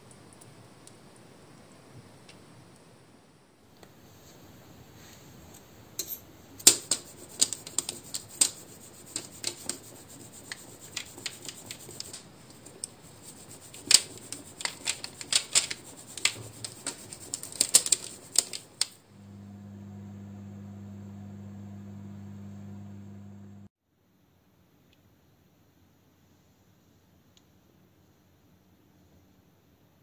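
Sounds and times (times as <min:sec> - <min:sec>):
grater scratching dough: 0:06.7 - 0:18.8
oven hum: 0:19.1 - 0:23.7.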